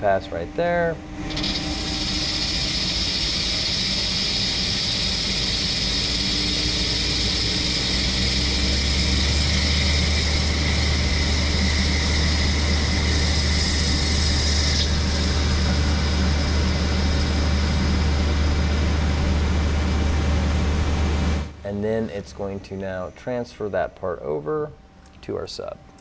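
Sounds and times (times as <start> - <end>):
low hum: 0.0 - 26.0
lathe cutting hiss: 0.7 - 21.5.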